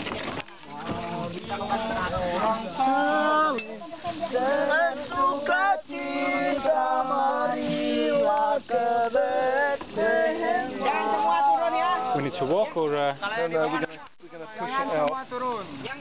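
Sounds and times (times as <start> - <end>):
voices singing: 0.0 - 16.0.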